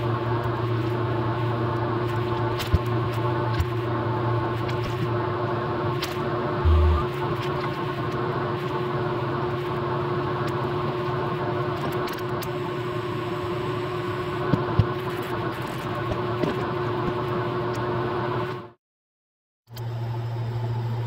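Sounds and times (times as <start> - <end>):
small electric machine humming: 6.5 - 7.3.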